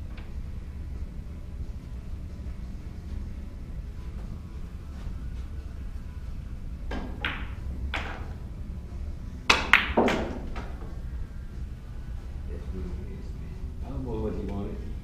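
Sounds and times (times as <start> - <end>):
cue striking ball: 6.9 - 8.4, 9.5 - 10.9
pool balls clicking: 6.9 - 8.4, 9.5 - 10.9.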